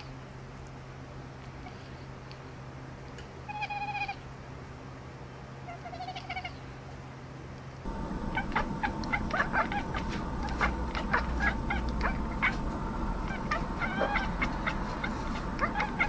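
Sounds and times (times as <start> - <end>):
cat meowing: 13.3 - 16.0.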